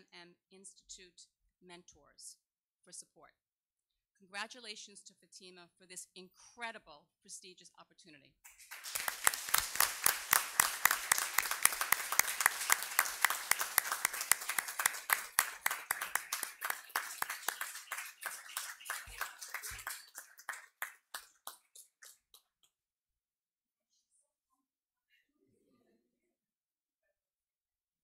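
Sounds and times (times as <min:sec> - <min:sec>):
audience applauding: 0:08.5 - 0:22.5.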